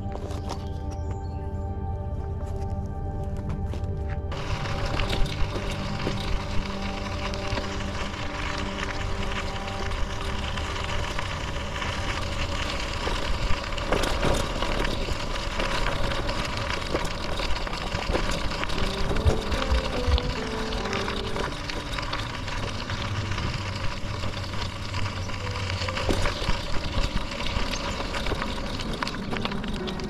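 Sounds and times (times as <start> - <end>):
bike clicks and rattles: 0.0 - 1.5, 2.4 - 30.0
bicycle tyres rolling on gravel: 0.0 - 30.0
wind rumbling on microphone: 0.0 - 30.0.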